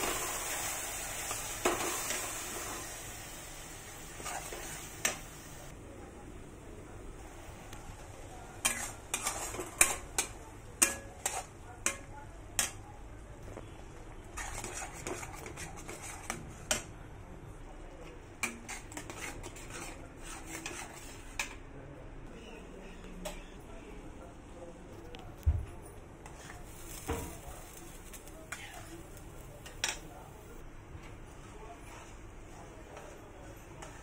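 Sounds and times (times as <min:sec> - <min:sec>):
spatula scraping pan: 0:04.1 - 0:05.2, 0:08.6 - 0:11.6, 0:14.4 - 0:16.8, 0:18.4 - 0:21.6, 0:26.2 - 0:27.3.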